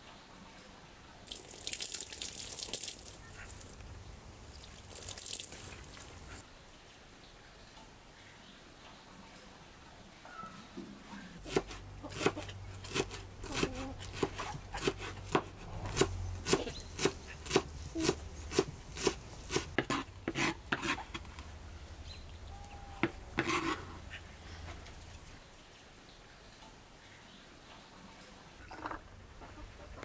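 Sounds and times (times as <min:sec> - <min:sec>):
knife chopping on wooden board: 0:11.4 - 0:21.0
knife scraping board: 0:11.5 - 0:21.2, 0:23.0 - 0:24.0.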